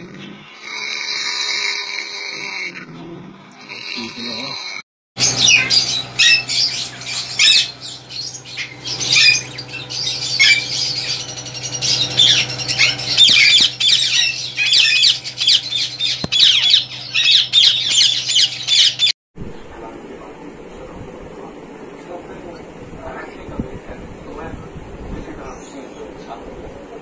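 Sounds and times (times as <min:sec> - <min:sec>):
parrots squawking: 0:03.6 - 0:19.1
steady low hum: 0:05.2 - 0:27.0.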